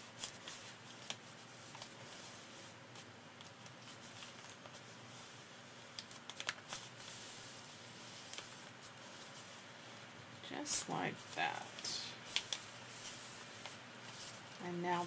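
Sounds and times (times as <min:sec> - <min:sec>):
paper rubbing and rustling: 0:00.0 - 0:15.0
light paper taps and crinkles: 0:05.9 - 0:07.2, 0:11.7 - 0:14.6.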